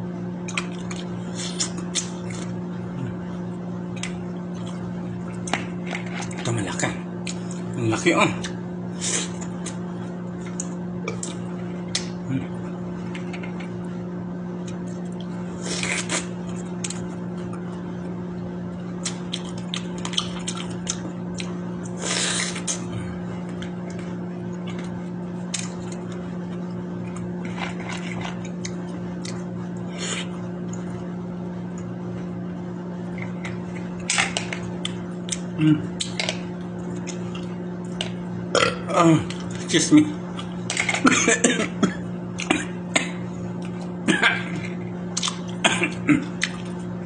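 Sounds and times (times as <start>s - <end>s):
steady low hum: 0.0s - 47.0s
chewing and smacking: 0.4s - 2.6s, 3.9s - 6.6s, 19.0s - 21.9s, 23.4s - 29.5s, 33.1s - 38.2s, 44.5s - 45.6s, 46.3s - 46.9s.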